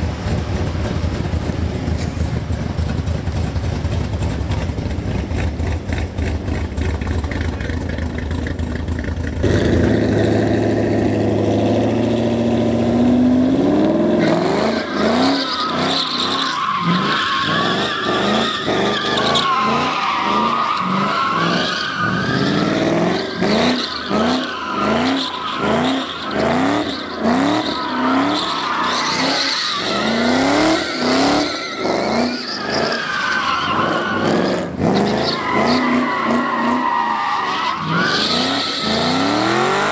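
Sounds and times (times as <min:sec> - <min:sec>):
car engine revving: 0:00.0 - 0:39.9
tyres squealing: 0:14.1 - 0:39.9.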